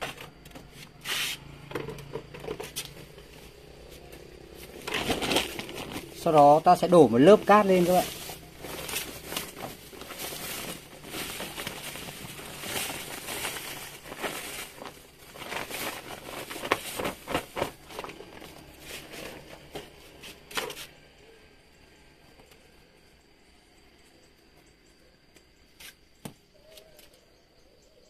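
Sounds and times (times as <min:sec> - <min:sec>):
plastic sack crinkling: 0:04.0 - 0:20.0.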